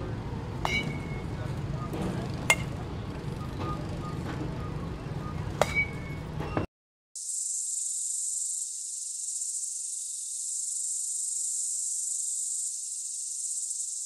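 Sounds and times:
high-pitched insect drone: 0:07.2 - 0:14.0.

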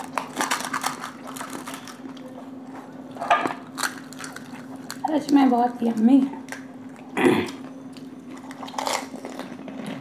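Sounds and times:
crisp shells cracking: 0:00.0 - 0:02.2, 0:03.6 - 0:07.0, 0:08.0 - 0:09.6.

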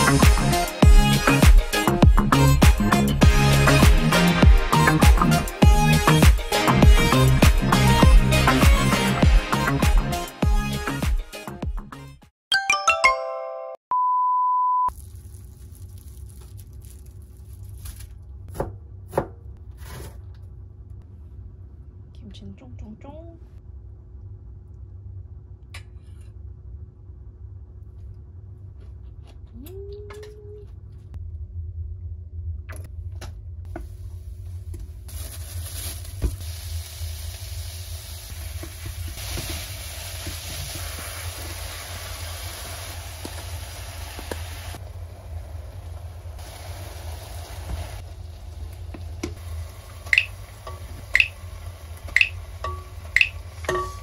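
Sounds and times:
food sizzling in a pan: 0:35.1 - 0:54.0.

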